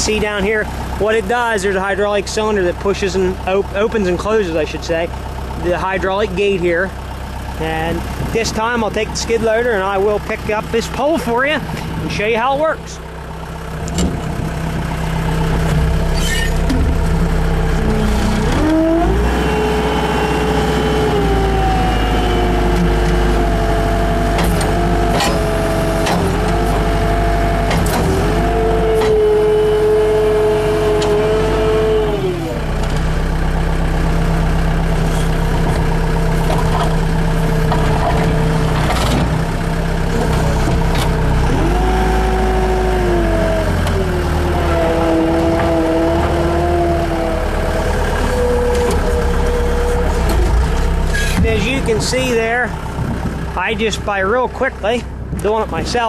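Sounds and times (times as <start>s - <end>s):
loader engine under hydraulic load: 4.3s - 12.2s, 13.0s - 53.6s
hydraulic whine: 13.8s - 33.0s, 34.9s - 53.6s.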